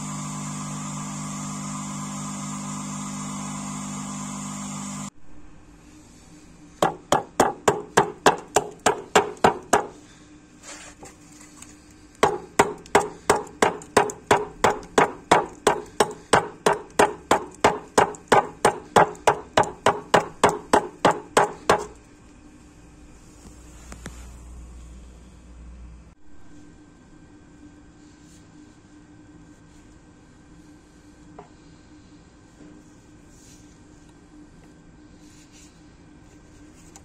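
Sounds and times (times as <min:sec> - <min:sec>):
adze chopping into wood: 0:06.8 - 0:09.9, 0:12.2 - 0:22.0.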